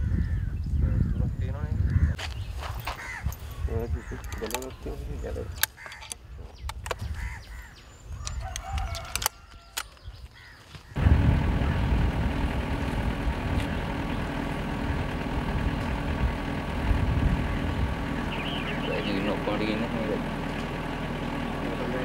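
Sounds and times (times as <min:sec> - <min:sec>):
faint bird calls: 0:00.0 - 0:11.0, 0:17.5 - 0:19.9
low mechanical rumble: 0:03.0 - 0:22.0
sharp clicks: 0:04.2 - 0:04.8, 0:05.5 - 0:07.1, 0:08.2 - 0:10.1.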